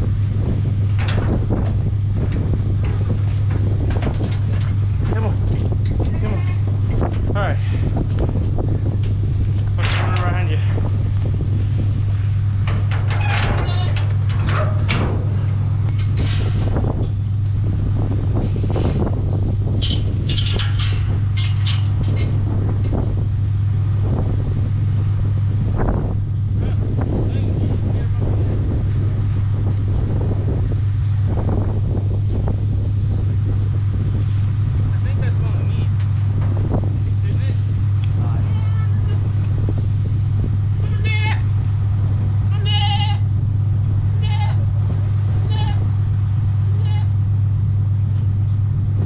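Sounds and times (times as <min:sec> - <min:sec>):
vehicle engine humming: 0:00.0 - 0:49.0
wind rumbling on microphone: 0:00.0 - 0:49.0
knocks and rattles: 0:00.8 - 0:07.4, 0:08.0 - 0:17.4, 0:18.1 - 0:23.2.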